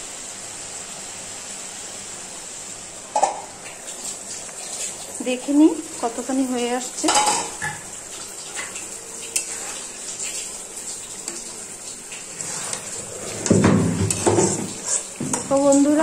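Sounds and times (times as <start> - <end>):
food sizzling: 0.0 - 16.0
cookware clatter: 3.1 - 3.5, 7.0 - 7.8
metal spatula scraping in pan: 9.3 - 9.9, 12.3 - 15.8.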